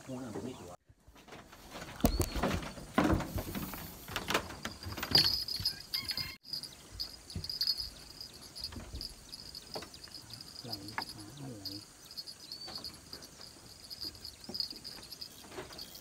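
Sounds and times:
insects trilling: 3.5 - 16.0.

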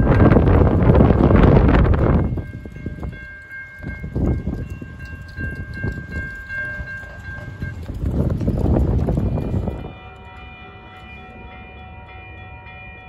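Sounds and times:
wind rumble on microphone: 0.0 - 10.0
level-crossing warning bell ringing: 0.0 - 13.0.

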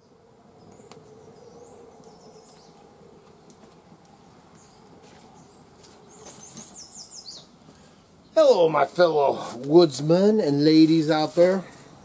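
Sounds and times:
small birds chirping: 0.0 - 12.0
wood fire crackling: 0.5 - 12.0.

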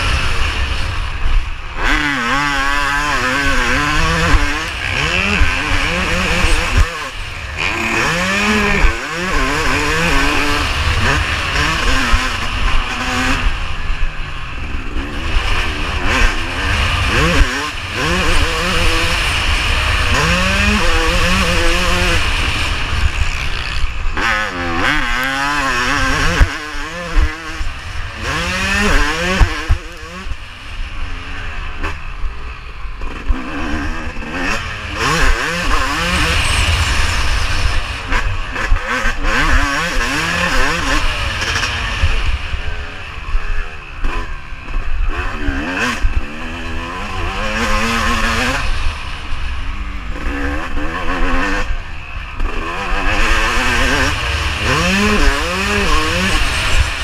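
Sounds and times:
motocross engine revving hard: 0.0 - 32.2, 32.9 - 57.0.

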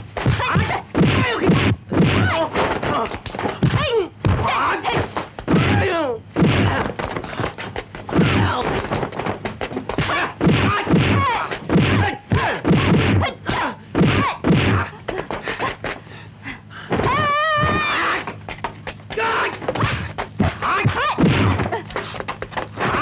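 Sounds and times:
fighters shouting and grunting: 0.2 - 7.0, 8.1 - 8.8, 10.0 - 15.0, 19.1 - 21.8, 22.8 - 23.0
punch and block whacks: 0.2 - 7.1, 8.1 - 8.8, 10.0 - 14.9, 19.8 - 21.7.

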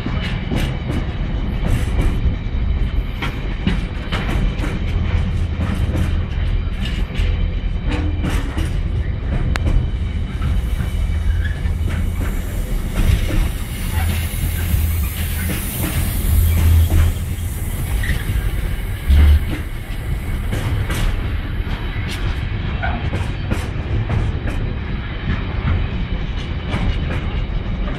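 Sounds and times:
wheels rumbling on rail: 0.0 - 27.9
loud low thump: 19.0 - 20.0.

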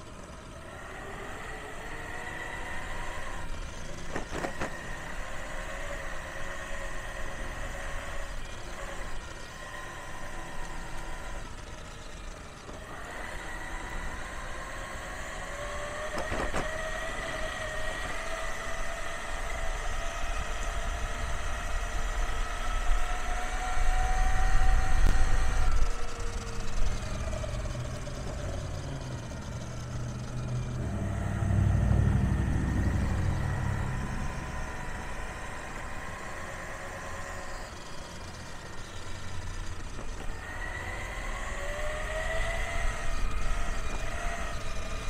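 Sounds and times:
gear whine rising in pitch: 0.0 - 45.0
low rumble: 28.3 - 36.1.

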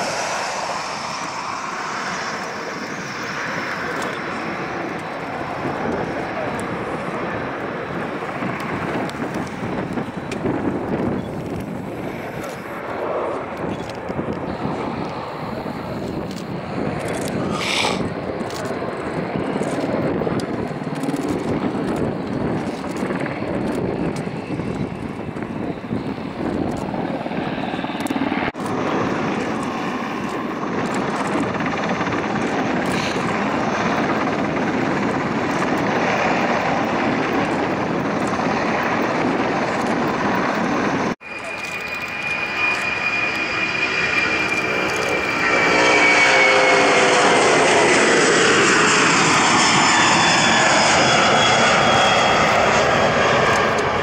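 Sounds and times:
helicopter rotor and turbine: 0.0 - 54.0.

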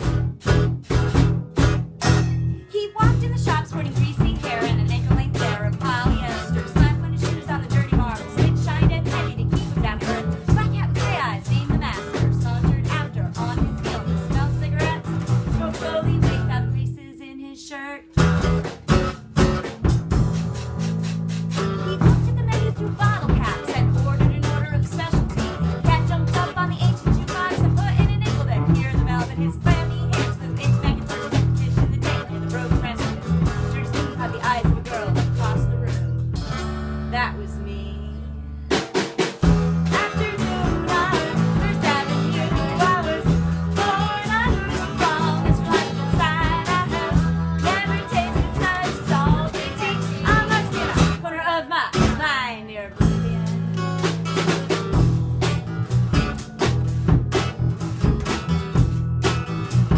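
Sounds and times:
drum kit: 0.0 - 16.9, 18.0 - 37.3, 38.6 - 51.3, 51.9 - 52.4, 53.0 - 59.9
electric bass: 0.0 - 17.1, 18.1 - 51.2, 51.9 - 59.9
acoustic guitar strumming: 0.0 - 59.9
person singing: 2.4 - 18.3, 21.9 - 36.1, 39.8 - 53.7.

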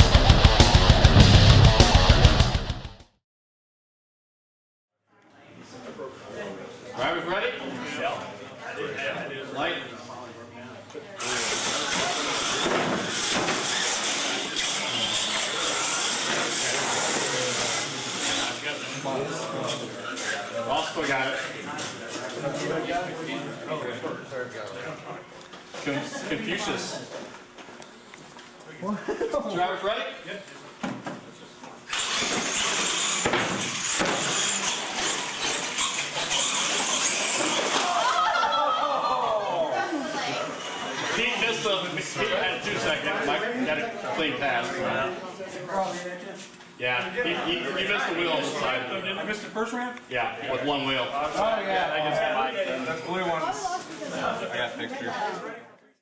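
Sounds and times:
rc trucks high hissing whine: 11.2 - 19.2, 31.9 - 38.0.

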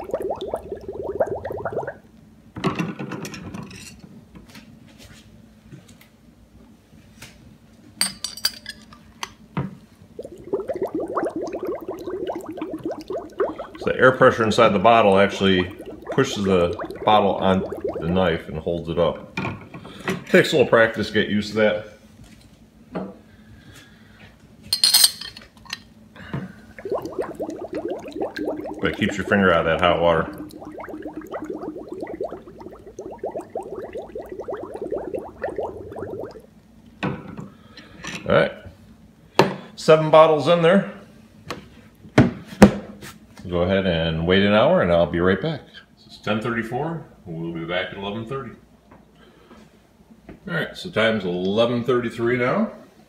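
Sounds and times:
air bubbling in liquid: 0.0 - 2.1, 10.1 - 19.4, 26.5 - 36.6
bottle gurgling as it fills: 0.0 - 2.1, 10.2 - 19.1, 26.6 - 36.5
glass clinks: 24.8 - 25.4.

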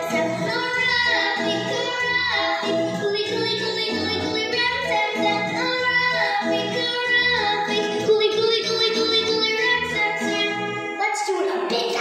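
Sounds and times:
backing music with steady beat: 0.0 - 12.0
children singing: 0.0 - 12.0.

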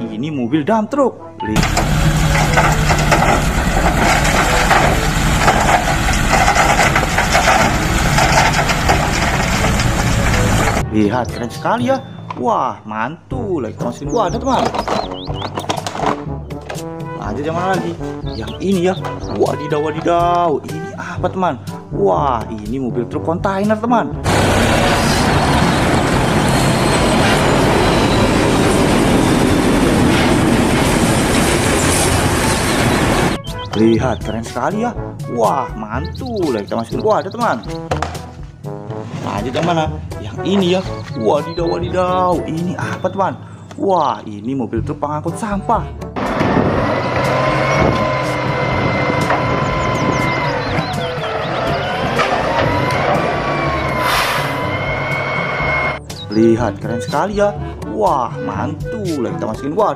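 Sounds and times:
truck engine running: 1.6 - 10.9, 24.2 - 33.7, 46.2 - 56.2
soil and rocks pouring: 1.8 - 10.8.

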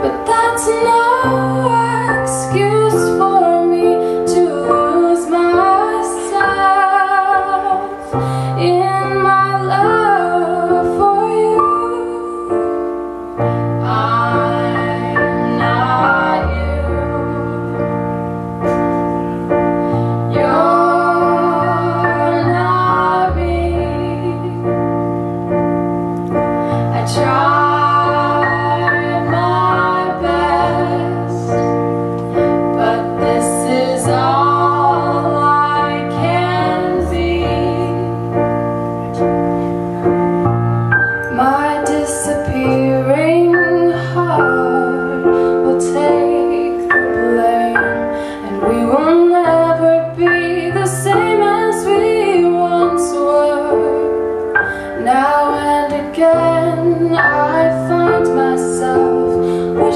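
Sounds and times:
woman singing: 0.0 - 12.9, 13.7 - 17.7, 20.3 - 24.9, 26.8 - 31.8, 32.7 - 38.3, 41.2 - 59.9
electronic keyboard chords: 0.0 - 59.9.

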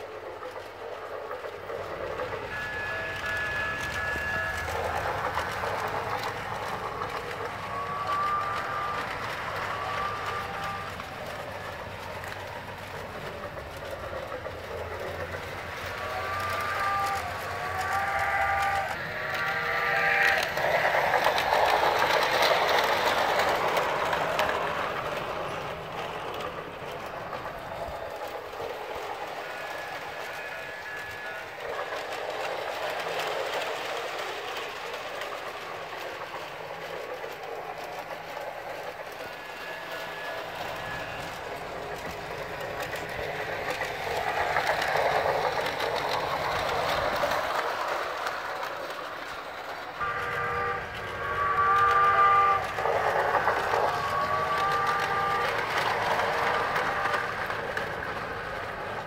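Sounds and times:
toy train running on track: 0.0 - 59.0
wavering whistle-like sound: 1.4 - 28.4.

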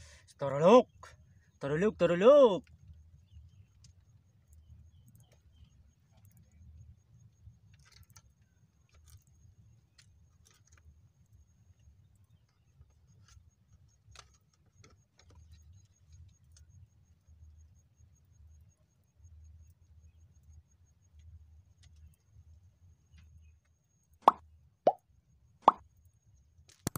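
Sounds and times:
light clicks and rustles: 2.6 - 16.8.

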